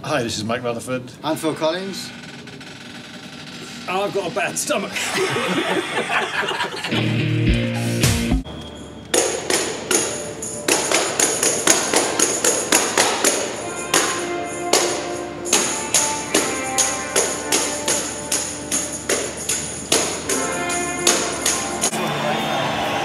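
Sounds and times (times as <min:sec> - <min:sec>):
tambourine hits with jingles: 0:09.2 - 0:23.0
faint sustained musical notes: 0:13.3 - 0:23.0.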